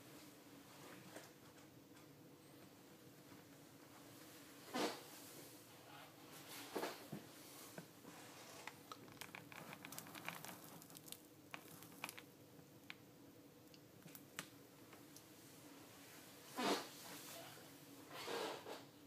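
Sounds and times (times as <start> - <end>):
faint steady hum: 0.0 - 19.0
small faint clicks and ticks: 8.6 - 13.0.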